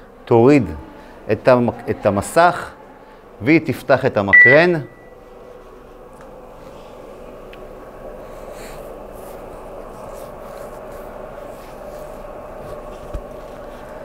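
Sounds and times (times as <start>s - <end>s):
electric hum with fixed tones: 0.0s - 14.0s
microphone rustling against shirt: 9.1s - 14.0s.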